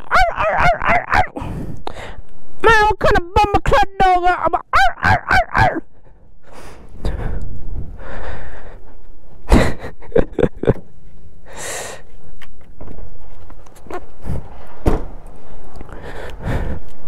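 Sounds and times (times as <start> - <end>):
person breathing heavily: 1.2 - 2.3, 5.9 - 10.1, 11.4 - 12.2, 15.4 - 17.0.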